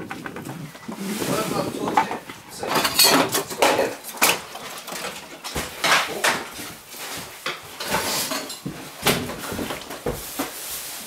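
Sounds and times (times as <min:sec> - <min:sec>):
dishes and cutlery clattering: 0:01.9 - 0:06.6, 0:07.4 - 0:09.9.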